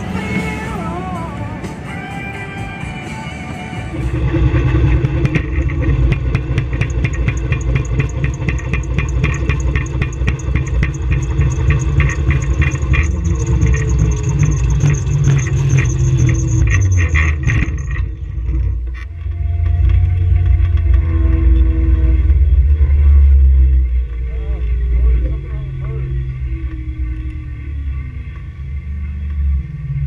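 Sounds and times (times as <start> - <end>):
faint high whine: 0.0 - 30.0
wind and road noise rumble: 0.0 - 30.0
car chassis clatter: 4.3 - 21.0.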